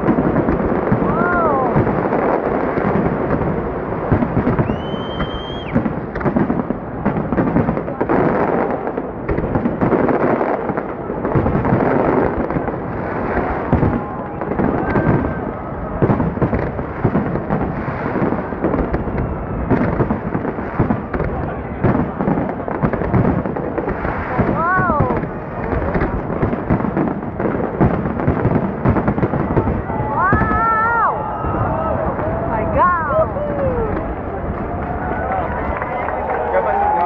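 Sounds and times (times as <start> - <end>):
fireworks booming and crackling: 0.0 - 37.0
high firework whistle: 4.4 - 5.9.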